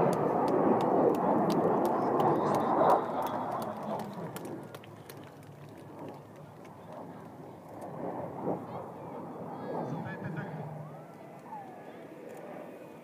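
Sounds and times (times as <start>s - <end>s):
fighter jet roar: 0.0s - 13.0s.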